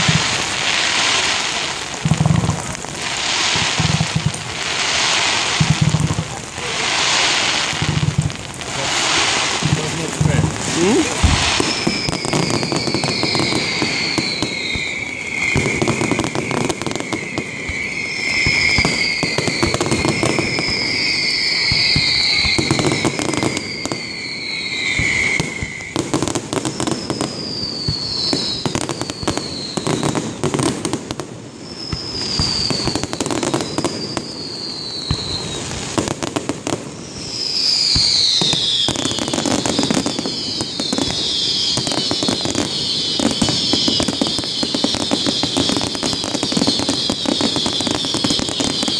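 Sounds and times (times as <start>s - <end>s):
falling firework whistles: 0.0s - 48.9s
firework bangs and crackling bursts: 0.0s - 48.9s
held high whistle: 10.8s - 30.4s, 31.6s - 35.8s, 37.0s - 48.9s.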